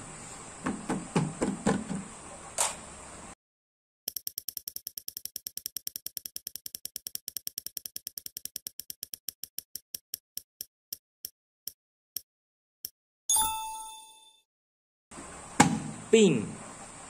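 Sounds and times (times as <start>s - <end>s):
prize wheel ticking: 4.1s - 10.2s.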